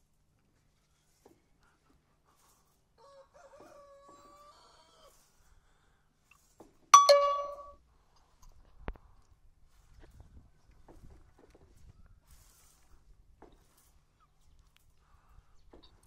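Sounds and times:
faint steady call: 7.0s - 7.7s
metallic ding: 7.0s - 7.7s.

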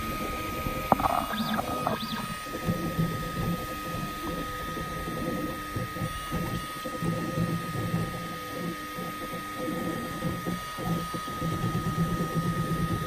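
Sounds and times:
high-pitched whine: 0.8s - 2.6s
stepper motors humming: 0.8s - 2.6s.

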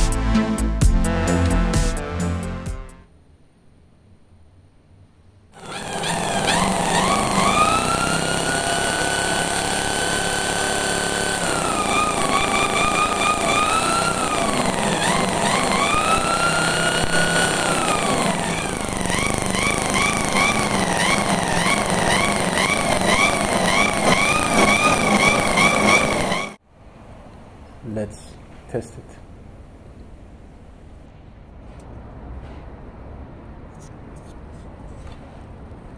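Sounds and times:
electric drill motor whine: 5.6s - 26.6s.

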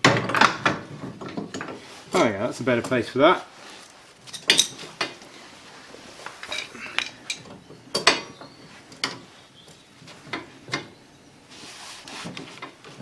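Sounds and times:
metal tools clinking: 4.2s - 5.2s, 6.4s - 8.4s.

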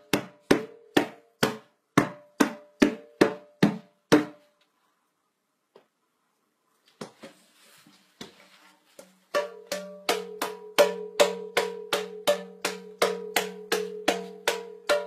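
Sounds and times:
hand drum beating: 9.3s - 15.0s.

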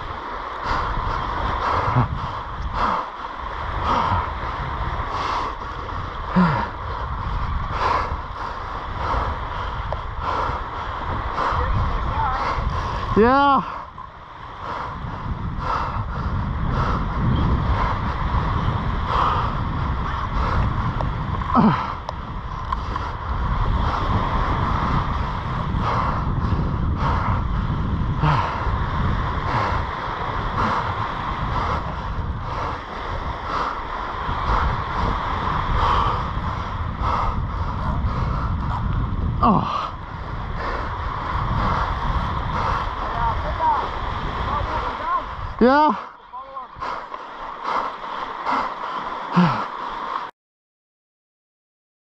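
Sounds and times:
small waves washing on shore: 0.0s - 50.3s
wind rumbling on microphone: 0.0s - 50.3s
person breathing hard: 0.6s - 43.2s, 44.7s - 50.2s
grunts of effort: 6.3s - 6.8s, 21.5s - 22.0s, 39.4s - 40.0s, 49.3s - 49.8s.

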